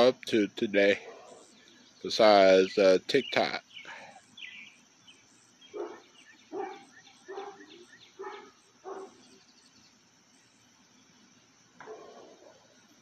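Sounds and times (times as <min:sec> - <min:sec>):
faint dog barking: 0:01.0 - 0:01.5, 0:05.7 - 0:09.2, 0:11.8 - 0:12.7.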